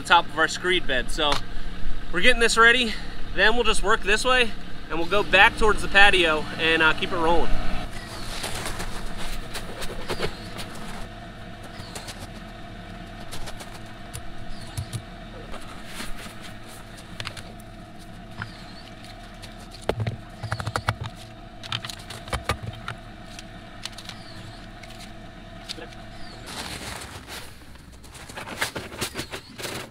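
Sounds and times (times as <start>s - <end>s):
steady mechanical hum: 0.0s - 29.9s
bird chirping: 7.9s - 15.8s, 16.8s - 21.4s, 22.1s - 26.7s.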